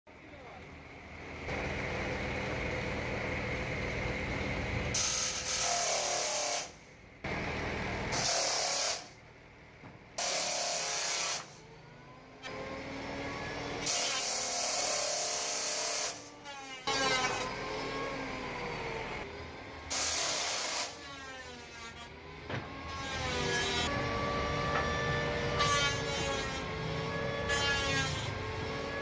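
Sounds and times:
saw cutting wood: 4.9s - 6.8s, 8.1s - 9.2s, 10.2s - 11.8s, 12.4s - 29.0s
table saw motor hum: 10.2s - 29.0s.

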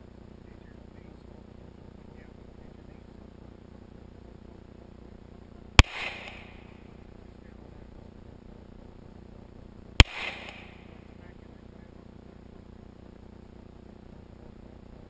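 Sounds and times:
pistol shots with echo: 5.8s - 6.8s, 10.0s - 11.0s.

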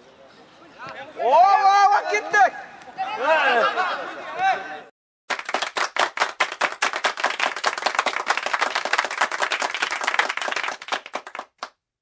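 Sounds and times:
crowd applause: 5.3s - 11.7s.

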